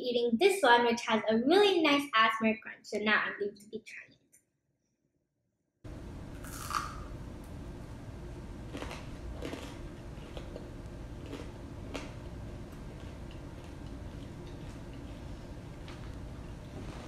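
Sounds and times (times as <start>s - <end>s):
fries crunching when chewed: 6.4s - 7.1s, 8.6s - 17.0s.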